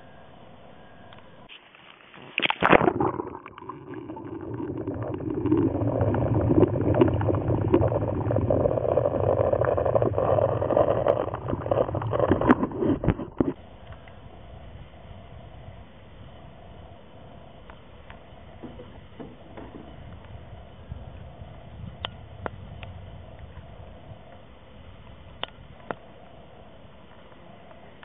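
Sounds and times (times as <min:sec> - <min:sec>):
muffled underwater rushing and gurgling: 0:02.1 - 0:28.0
water splashing over microphone: 0:02.2 - 0:13.6
underwater clicks: 0:02.4 - 0:14.2.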